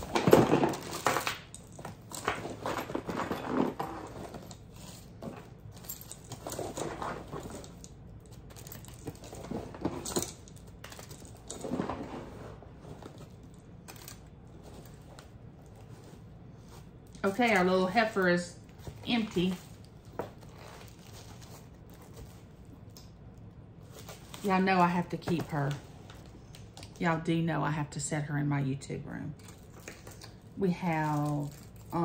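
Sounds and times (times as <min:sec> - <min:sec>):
metal keychains clinking and jangling: 0:00.8 - 0:11.7.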